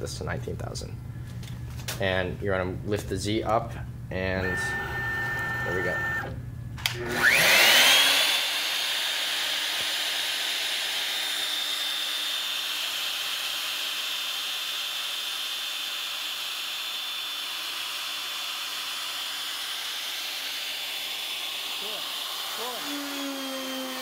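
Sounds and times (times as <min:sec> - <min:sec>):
spindle motor whine: 0:04.3 - 0:13.3, 0:19.6 - 0:24.0.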